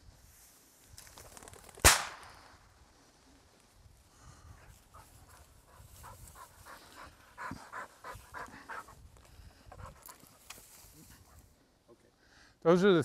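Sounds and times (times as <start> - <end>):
dog panting: 4.6 - 10.4.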